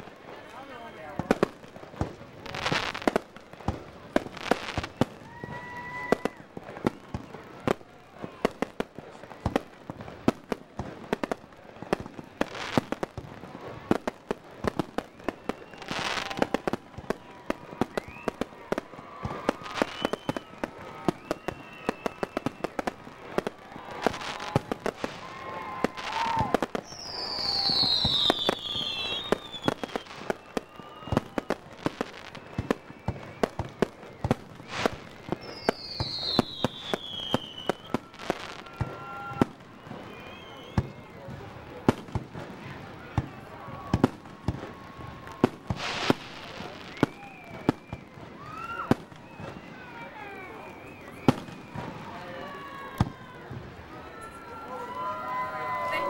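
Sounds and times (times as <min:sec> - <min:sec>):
fireworks bangs and crackles: 0:00.0 - 0:56.0
heavy firework booms: 0:09.4 - 0:49.7
high falling whistle: 0:19.0 - 0:22.9, 0:24.1 - 0:41.0, 0:45.7 - 0:49.9.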